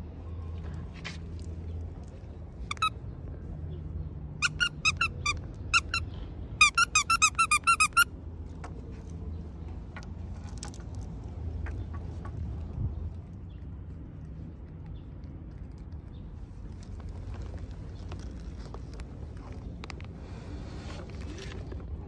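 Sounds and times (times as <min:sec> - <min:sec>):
dog toy squeaking: 0:02.7 - 0:03.0, 0:04.4 - 0:08.1.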